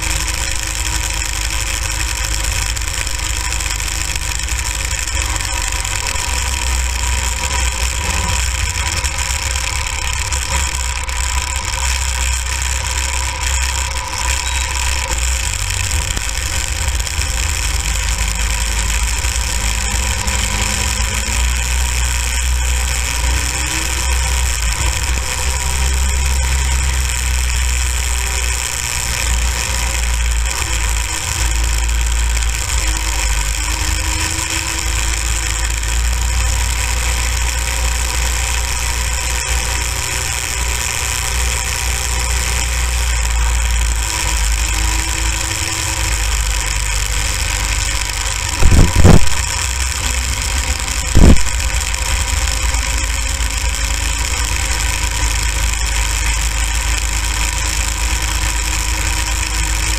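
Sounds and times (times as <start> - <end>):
go-kart engine running: 0.0 - 59.9
loud thumps: 48.6 - 49.5, 51.1 - 51.6
wind rumble on microphone: 48.6 - 50.3, 51.1 - 51.6.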